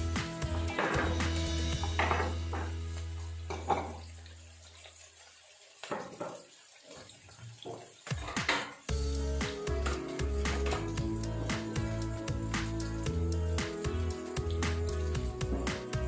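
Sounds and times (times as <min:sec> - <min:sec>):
onion sizzling in frying pan: 0:00.0 - 0:03.8
background music: 0:00.0 - 0:04.0, 0:08.1 - 0:16.0.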